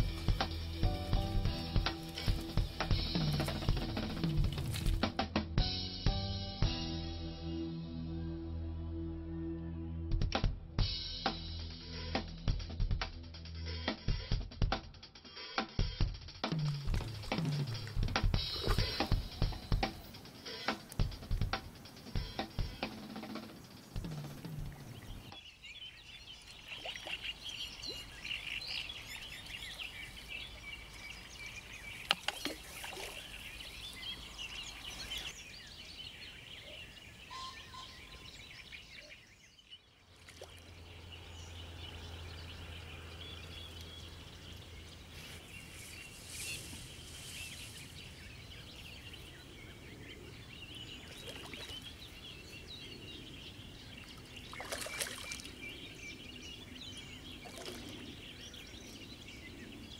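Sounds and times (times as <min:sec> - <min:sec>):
birds chirping: 0:00.0 - 0:05.1, 0:16.4 - 0:59.9
outdoor background hum: 0:40.0 - 0:45.9.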